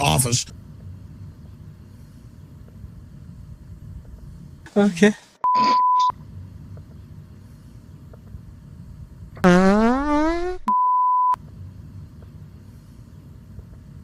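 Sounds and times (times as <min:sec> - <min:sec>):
low rumbling background noise: 0:00.0 - 0:09.9, 0:11.3 - 0:14.0
high test-tone beep: 0:05.4 - 0:06.1
loud rising buzzy tone: 0:09.4 - 0:10.7.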